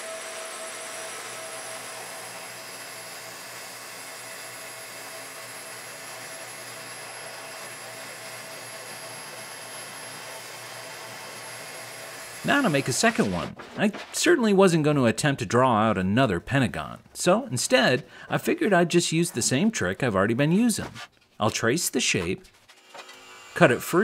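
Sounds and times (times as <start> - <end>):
spindle sander running: 0.0 - 13.4.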